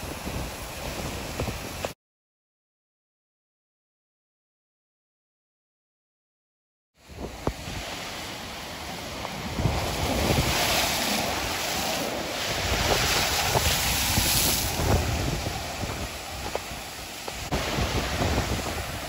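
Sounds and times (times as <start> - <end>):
storm surf breaking on beach: 0.0 - 2.0, 7.0 - 19.0
wind buffeting microphone: 0.0 - 2.0, 7.0 - 19.0.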